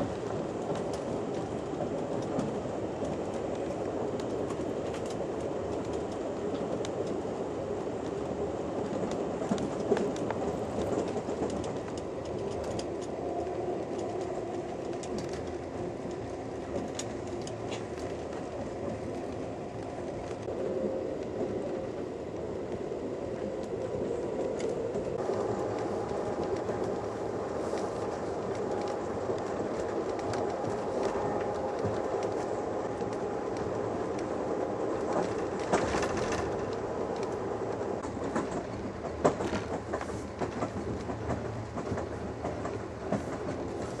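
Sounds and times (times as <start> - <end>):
train car rumbling on track: 0.0 - 44.0
wheels clicking over rails: 23.5 - 44.0.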